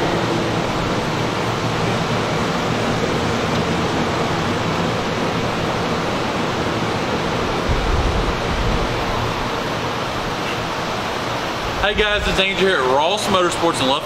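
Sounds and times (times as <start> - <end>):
fan blowing air: 0.0 - 14.0.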